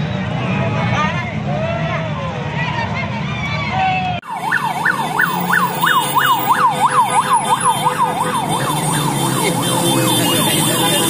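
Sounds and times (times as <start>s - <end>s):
siren yelping: 4.2s - 10.7s
motorcycle engines passing: 4.3s - 11.0s.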